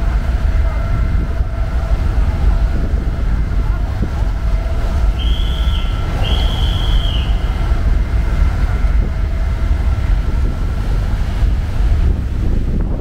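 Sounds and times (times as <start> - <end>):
ferry engines rumbling: 0.0 - 13.0
high flat squeals: 4.8 - 9.8.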